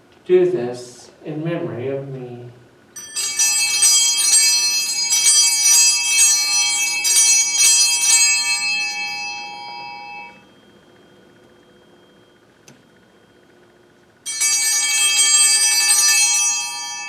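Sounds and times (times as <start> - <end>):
altar bells shaken: 2.9 - 12.4, 14.2 - 17.0.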